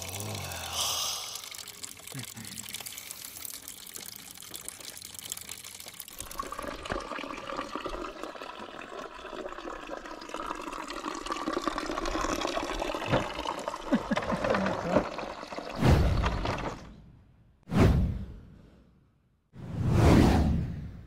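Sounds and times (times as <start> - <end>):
water splashing into stone trough: 12.3 - 16.8.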